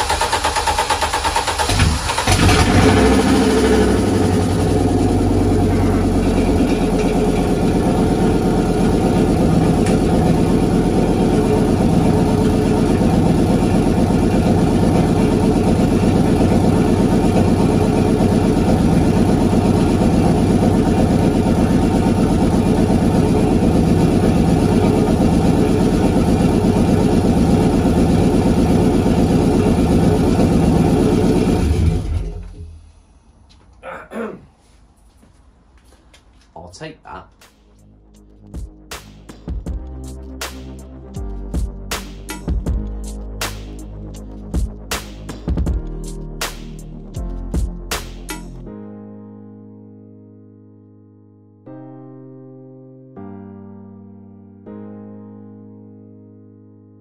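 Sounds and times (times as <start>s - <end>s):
car engine running loud: 0.0s - 32.8s.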